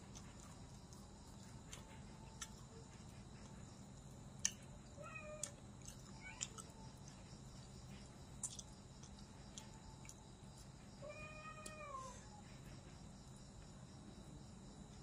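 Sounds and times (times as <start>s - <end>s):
cat meowing faintly: 11.0s - 12.4s.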